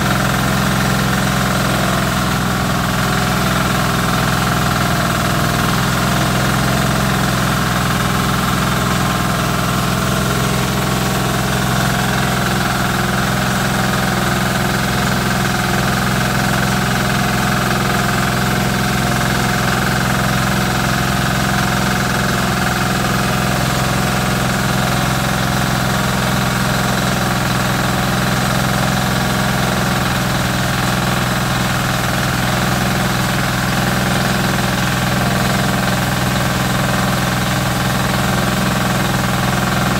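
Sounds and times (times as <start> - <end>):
diesel engine running: 0.0 - 39.9
rice milling machine: 0.0 - 39.9.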